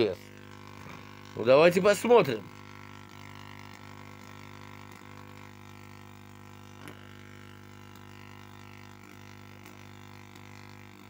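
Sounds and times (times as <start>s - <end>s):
tesla coil electrical buzz: 0.0s - 11.0s.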